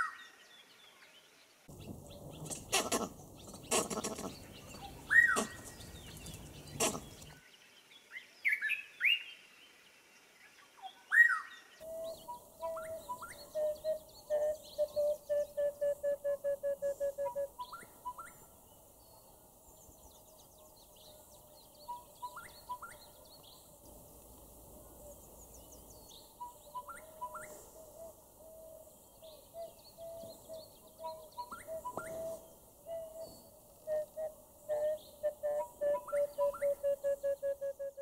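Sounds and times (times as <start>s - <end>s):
low whistled bird notes: 26.4s - 38.0s.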